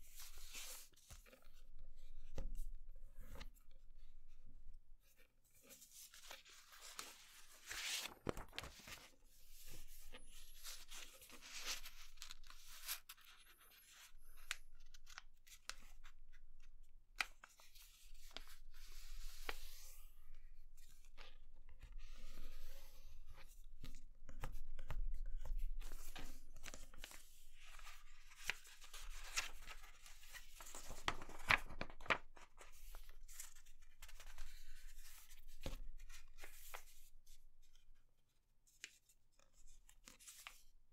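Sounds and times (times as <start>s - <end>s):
paper rustling and sliding: 5.6s - 13.0s, 25.9s - 36.9s.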